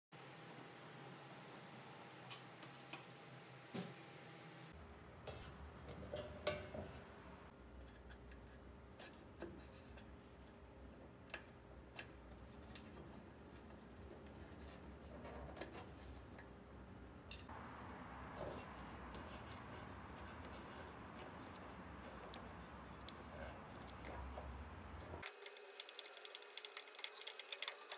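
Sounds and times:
small clicks and taps: 0:25.1 - 0:27.9.

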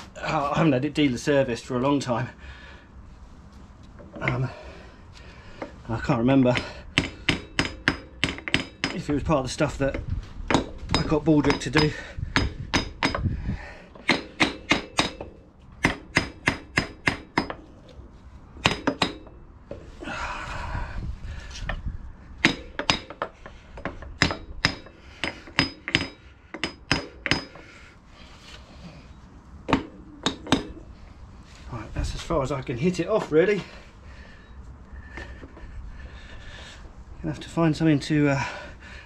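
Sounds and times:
hammer striking metal: 0:07.0 - 0:09.2, 0:10.5 - 0:13.2, 0:14.0 - 0:17.6, 0:18.6 - 0:19.4, 0:22.4 - 0:27.6, 0:29.7 - 0:30.8.

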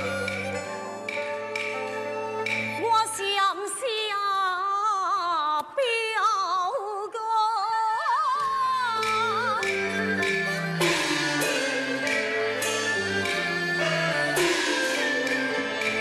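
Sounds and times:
traditional instrumental accompaniment: 0:00.0 - 0:04.0, 0:08.4 - 0:16.0
woman singing opera style: 0:02.8 - 0:12.1.

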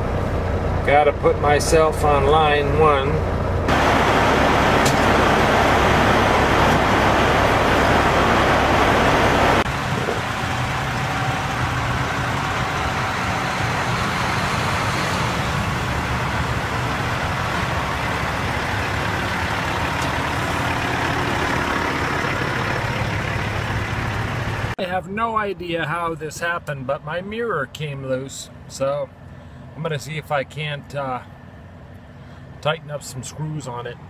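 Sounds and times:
diesel trucks idling: 0:00.0 - 0:34.0
loud rushing noise: 0:03.7 - 0:18.4.

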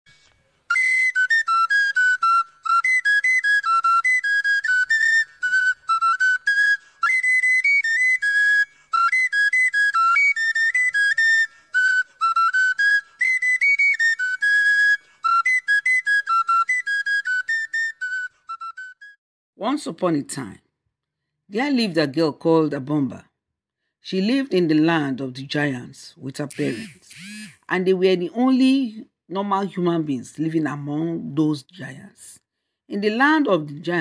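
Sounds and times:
high-pitched whistle tune: 0:00.2 - 0:19.2, 0:26.5 - 0:27.6.

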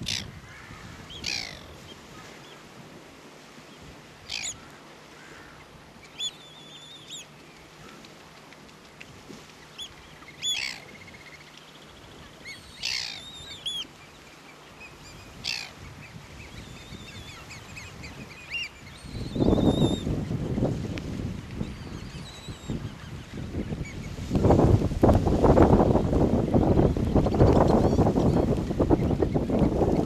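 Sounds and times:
terns calling: 0:00.0 - 0:02.7, 0:04.2 - 0:08.1, 0:09.5 - 0:20.7
wind buffeting microphone: 0:00.0 - 0:03.0, 0:15.0 - 0:30.0.

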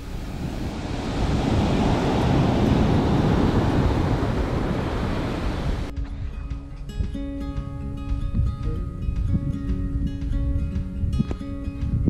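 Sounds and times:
surf breaking on beach: 0:00.0 - 0:05.9
wind on microphone: 0:00.0 - 0:12.0
acoustic guitar music: 0:05.9 - 0:12.0.

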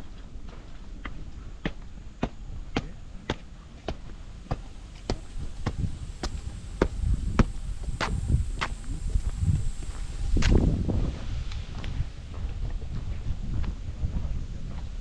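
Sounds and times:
footsteps on concrete: 0:00.0 - 0:15.0
heavy footfall thuds: 0:00.5 - 0:08.8.

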